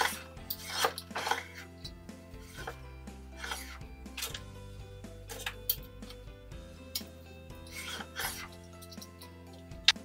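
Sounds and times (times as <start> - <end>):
metal-on-metal scraping: 0.0 - 4.5, 5.3 - 5.8, 7.5 - 9.3.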